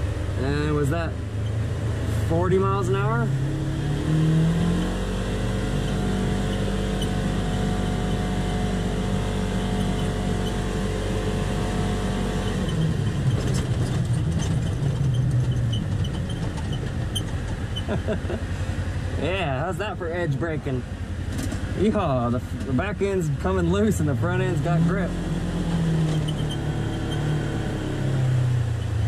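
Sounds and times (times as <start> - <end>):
utility vehicle engine: 0.0 - 29.0
clicks and rustling from tyres: 12.4 - 18.1, 21.2 - 21.7, 25.7 - 27.4.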